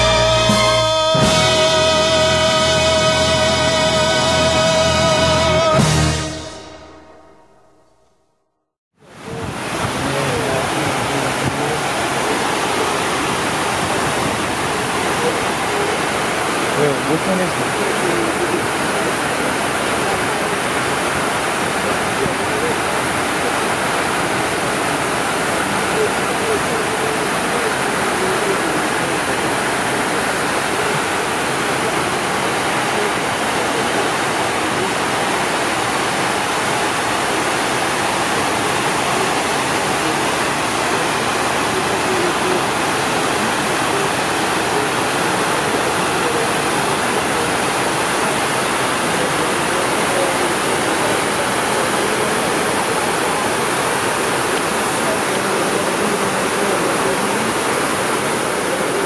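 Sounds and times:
rushing water falling: 0.0 - 6.3, 9.0 - 59.0.

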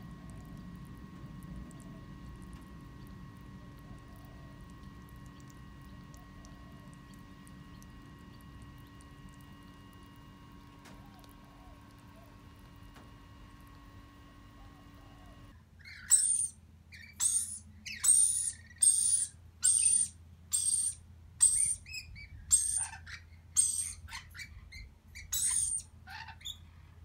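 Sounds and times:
lorikeets screeching: 15.8 - 26.6.

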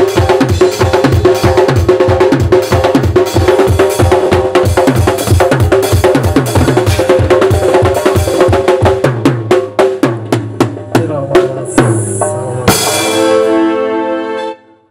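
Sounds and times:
drum kit and frame drum beats: 0.0 - 13.9
cymbal crash: 11.3 - 13.8
held chord: 11.6 - 14.9.

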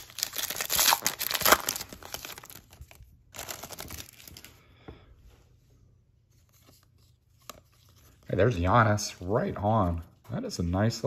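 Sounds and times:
foil wrapper crinkling: 0.0 - 4.5
cards rustling: 0.0 - 4.6, 6.2 - 11.0.

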